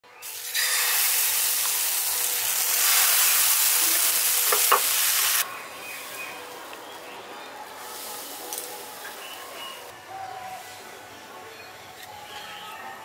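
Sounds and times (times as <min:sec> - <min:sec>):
batter sizzling in frying pan: 0:00.2 - 0:05.4.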